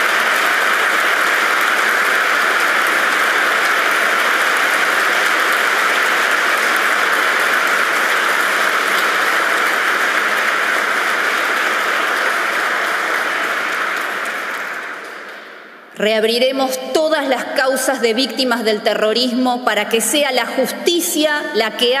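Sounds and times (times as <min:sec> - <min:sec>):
audience applauding: 0:00.0 - 0:15.8.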